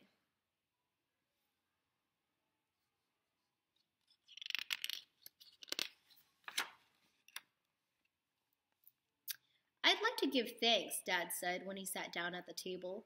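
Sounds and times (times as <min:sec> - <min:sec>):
book page turning: 0:03.8 - 0:07.5.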